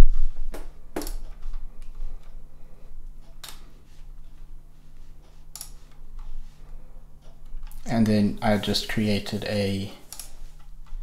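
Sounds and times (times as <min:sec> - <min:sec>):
faint electrical hum: 0:00.0 - 0:11.0
computer mouse clicks: 0:05.5 - 0:06.3, 0:10.1 - 0:11.0.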